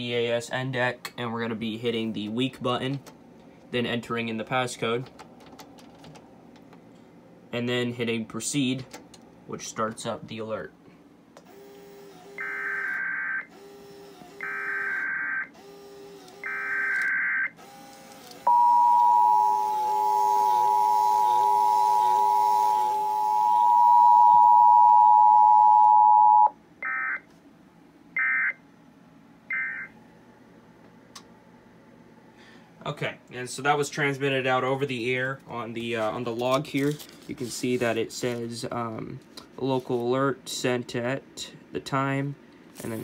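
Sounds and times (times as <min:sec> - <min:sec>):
two-tone attention signal: 0:18.5 - 0:26.5.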